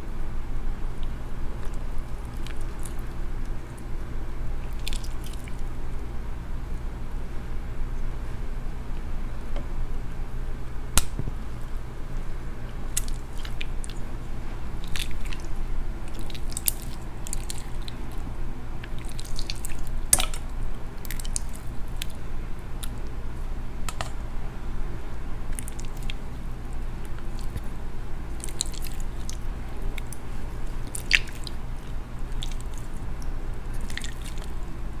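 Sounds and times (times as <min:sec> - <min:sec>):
steady low hum: 0:00.0 - 0:35.0
slime squelching: 0:01.0 - 0:05.8, 0:12.6 - 0:24.1, 0:25.1 - 0:35.0.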